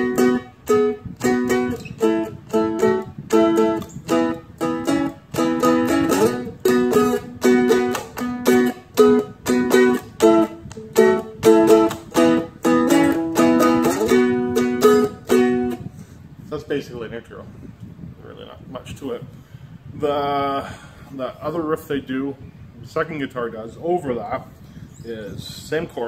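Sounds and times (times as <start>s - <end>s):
dulcimer strummed with a pick: 0.0s - 15.8s.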